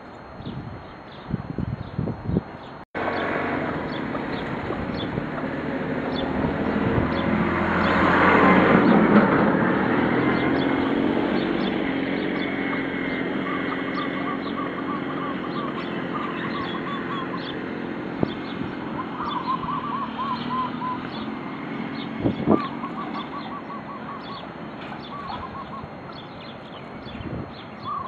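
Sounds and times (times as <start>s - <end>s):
small birds chirping: 0.0s - 8.1s, 10.2s - 28.0s
vehicle passing by: 3.0s - 28.0s
short bird calls: 22.5s - 27.2s.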